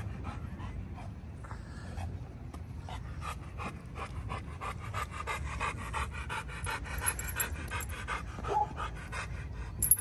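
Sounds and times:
dog panting: 2.7 - 9.8.

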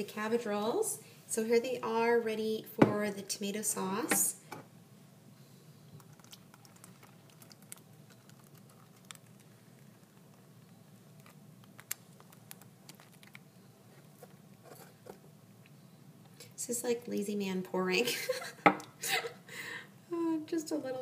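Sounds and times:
low room hum: 0.0 - 21.0
small clicks and ticks: 6.0 - 10.4.

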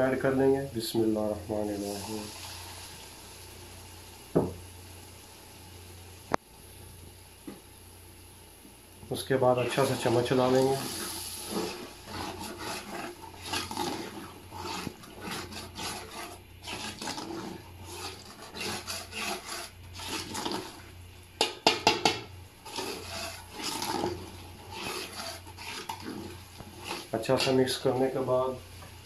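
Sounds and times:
spoon scraping metal pot: 9.8 - 20.9, 21.7 - 27.7
spoon knocking against pot: 21.4 - 22.3.

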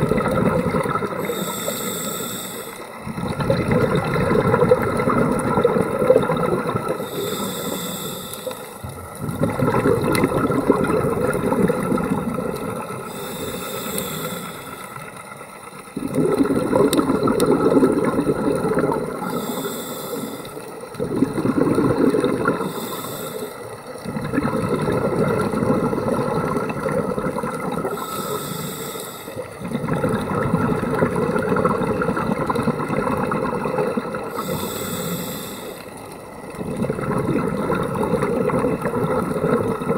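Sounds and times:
exhaled bubbles rushing: 0.0 - 1.4, 3.0 - 7.2, 8.8 - 13.5, 14.3 - 19.5, 20.6 - 22.9, 23.8 - 28.1, 29.4 - 34.6, 36.2 - 39.9
regulator hissing inhale: 1.1 - 3.0, 6.9 - 8.9, 13.0 - 15.4, 19.1 - 20.8, 22.4 - 23.8, 27.9 - 29.6, 34.3 - 36.3.

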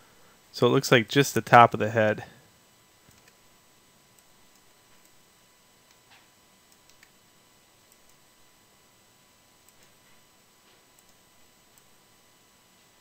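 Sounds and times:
computer mouse clicks: 3.1 - 3.4, 5.9 - 7.2, 7.9 - 8.2, 9.7 - 10.0, 11.0 - 11.9.

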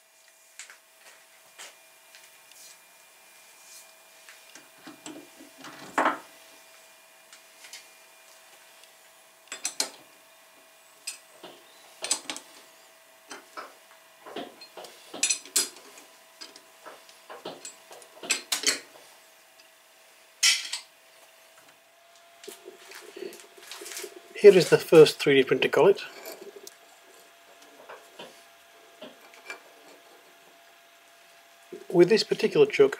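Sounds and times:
metal clinks and scrapes: 22.4 - 30.5.

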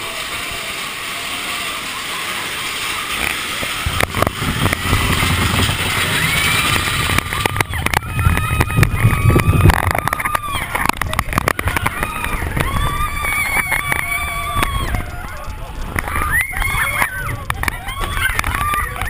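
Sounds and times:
low rumble of coaster: 0.0 - 19.0
roller coaster rushing hiss: 0.0 - 19.0
rattles and knocks: 2.7 - 19.0.

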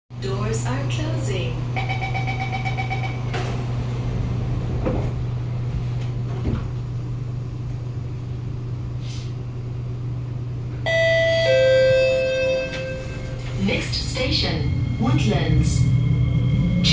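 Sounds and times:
low hum in train car: 0.1 - 16.9
door-closing warning beeps: 1.8 - 3.5, 10.9 - 13.8
two-note falling chime: 10.9 - 13.5.

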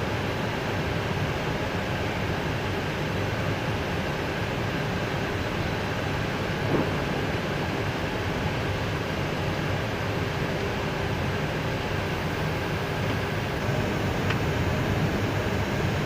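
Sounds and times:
aircraft cabin hum and rush: 0.0 - 16.0.

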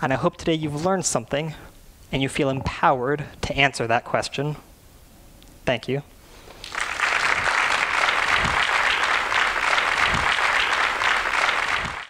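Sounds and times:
audience applause: 6.6 - 12.0
audience cheering: 6.7 - 12.0.

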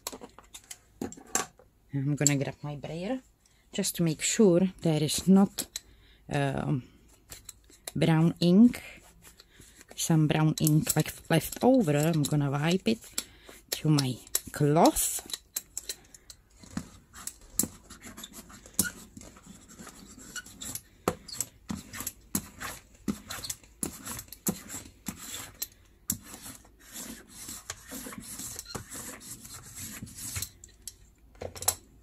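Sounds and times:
ink roller rolling on silicone: 16.5 - 30.5.

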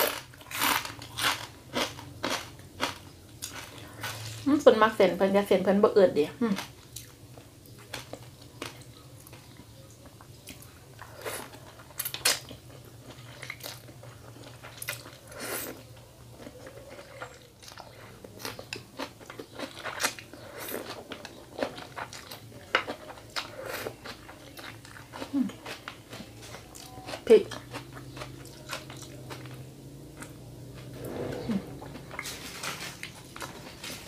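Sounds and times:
person chewing with wet smacks: 6.9 - 30.4.

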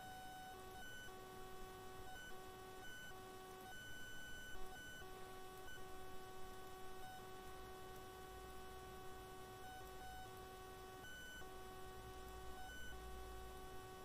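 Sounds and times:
faint electrical hum: 0.0 - 14.0.

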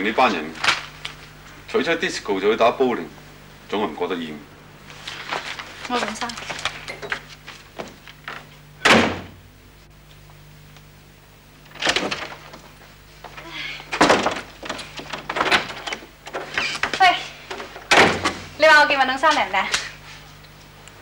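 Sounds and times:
door banging shut: 8.8 - 9.4, 11.7 - 12.5, 17.9 - 18.4
knocks and thuds: 8.8 - 9.4, 13.9 - 18.4.

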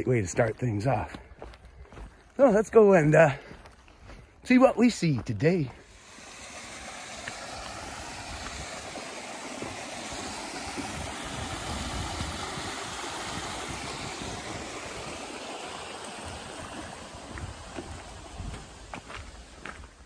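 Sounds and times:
soft footsteps: 0.0 - 6.1, 16.2 - 20.0
stream splashing over stones: 5.8 - 20.0.

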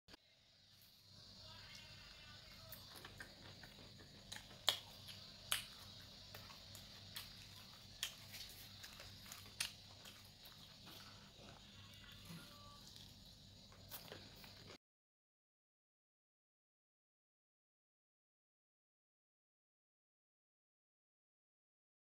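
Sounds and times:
faint low hum: 0.1 - 14.8
chewing crunchy food: 2.6 - 14.8.

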